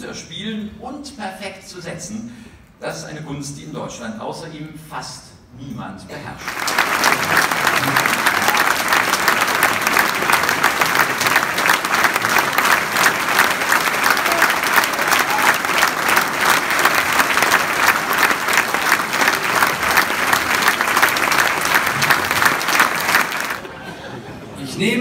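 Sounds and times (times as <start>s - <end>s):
large audience applauding: 6.4s - 23.9s.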